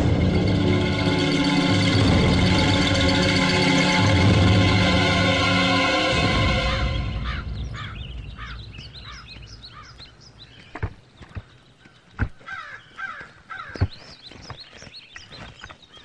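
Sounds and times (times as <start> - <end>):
background music: 0.0 - 10.0
birds chirping: 0.0 - 16.0
crows cawing: 7.1 - 10.6, 11.8 - 13.9.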